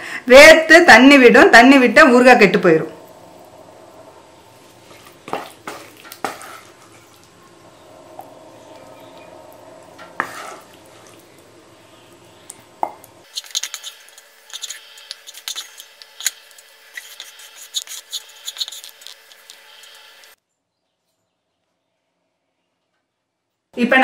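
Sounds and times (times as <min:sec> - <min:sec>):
wooden spatula scraping a pan: 0:04.9 - 0:07.1, 0:10.0 - 0:11.2, 0:13.3 - 0:20.0.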